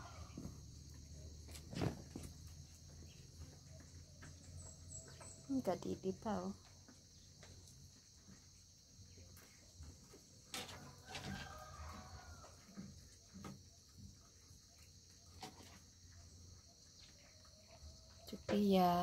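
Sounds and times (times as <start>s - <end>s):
distant rooster crow: 0.0s - 0.6s, 10.6s - 12.9s
insects droning: 0.0s - 19.0s.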